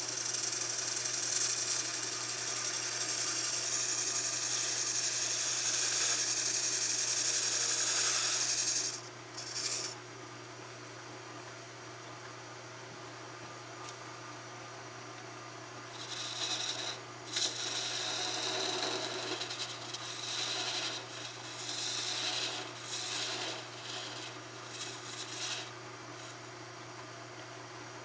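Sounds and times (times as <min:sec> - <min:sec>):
low lathe hum: 0:00.0 - 0:10.0, 0:14.6 - 0:27.0
tool scraping spinning wood: 0:00.0 - 0:10.0, 0:16.0 - 0:26.4.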